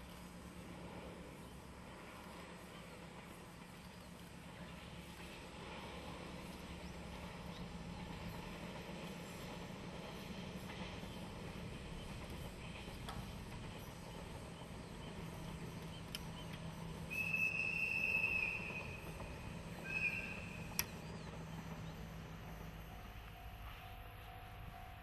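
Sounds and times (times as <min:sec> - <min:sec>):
distant diesel locomotive drone: 0:00.0 - 0:25.0
high steady whistle blast: 0:17.0 - 0:20.9.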